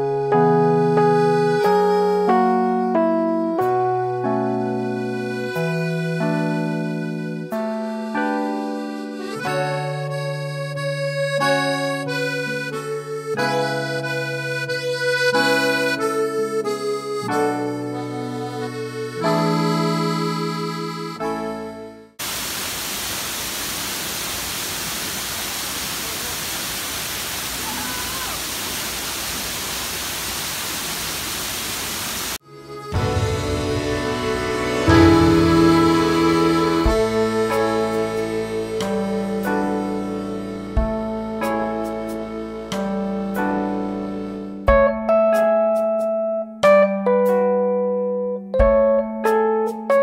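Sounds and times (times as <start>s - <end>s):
background music with held chords: 0.0s - 22.2s, 32.4s - 50.0s
waterfall rushing over rocks: 22.2s - 32.4s.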